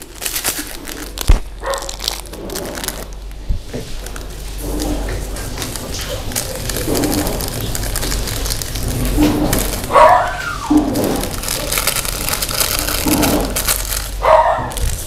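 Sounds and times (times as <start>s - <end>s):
dog barking: 1.6s - 1.9s, 9.9s - 10.6s, 14.2s - 14.8s.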